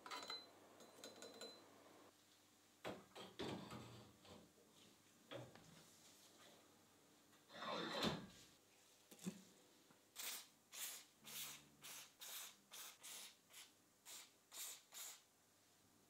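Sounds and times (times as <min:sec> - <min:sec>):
aerosol spray hissing: 0:10.2 - 0:15.2.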